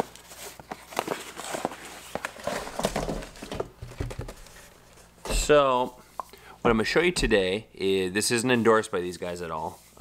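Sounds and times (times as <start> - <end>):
cardboard box rustling: 0.0 - 5.6.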